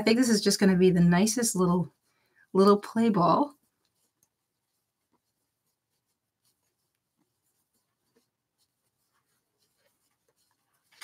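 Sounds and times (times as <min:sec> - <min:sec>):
yarn rustling with crochet hook: 0:00.0 - 0:11.0.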